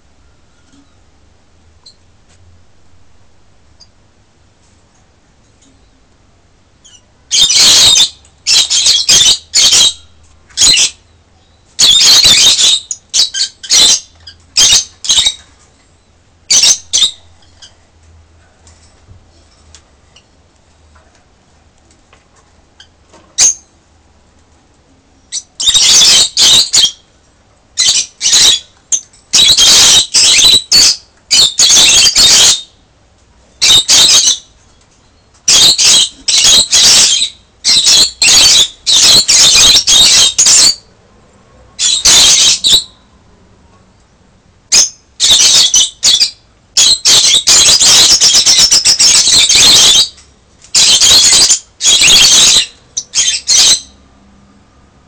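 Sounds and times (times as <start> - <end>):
lovebirds screeching: 6.8 - 15.5, 16.5 - 17.8, 25.3 - 27.1, 27.8 - 32.8, 33.6 - 34.6, 35.5 - 40.9, 41.8 - 43.0, 44.7 - 54.0.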